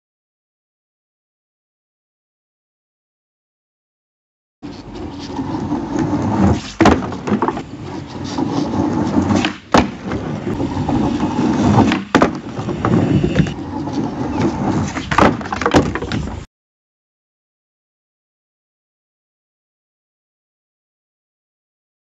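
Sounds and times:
skateboard wheels rumbling on wood: 4.6s - 16.5s
skateboard clacking: 4.8s - 16.4s.

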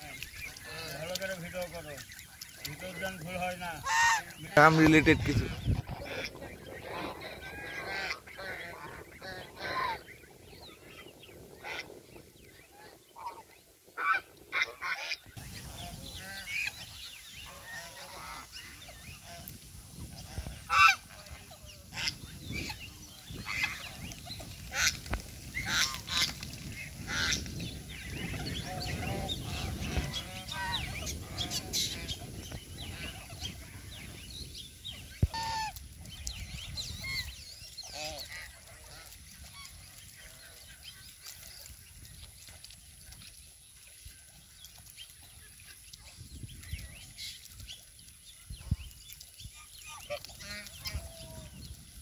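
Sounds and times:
geese honking: 0.0s - 10.1s, 14.0s - 33.9s, 35.2s - 35.8s, 37.0s - 41.6s, 49.6s - 51.5s.

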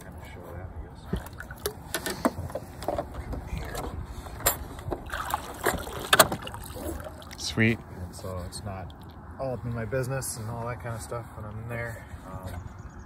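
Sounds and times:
trolling motor clicks and clunks: 1.1s - 6.6s.

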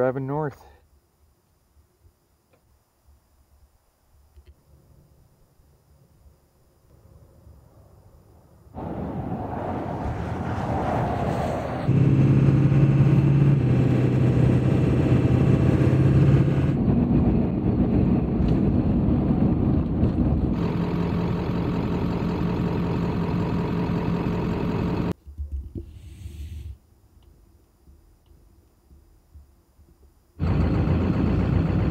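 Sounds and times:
diesel engine running: 11.9s - 25.2s, 30.4s - 31.9s.

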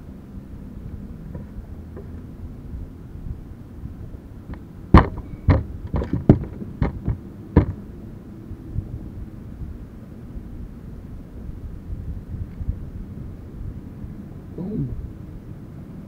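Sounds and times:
low steady rumble: 0.0s - 16.0s
fish thumping on boat deck: 5.0s - 7.8s.

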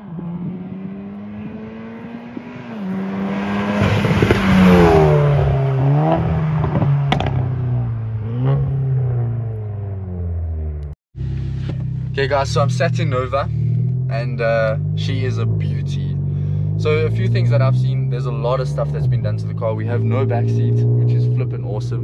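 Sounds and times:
car accelerating and passing by: 0.0s - 10.7s
exhaust crack: 2.3s - 22.0s.

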